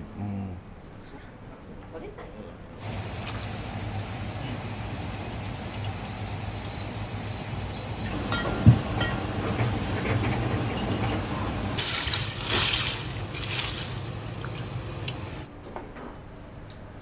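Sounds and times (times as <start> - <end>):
water boiling and bubbling: 2.8 - 15.5
water splashing: 11.7 - 15.5.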